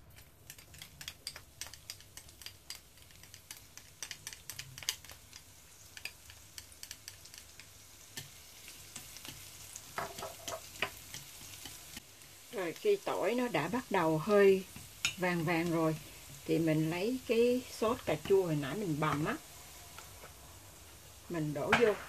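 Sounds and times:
chopsticks stirring: 0.0 - 12.0
garlic sizzling in hot oil: 0.0 - 22.0.

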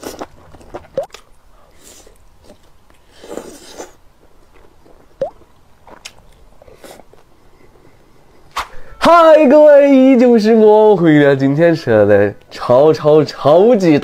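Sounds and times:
chewing: 0.0 - 7.3.

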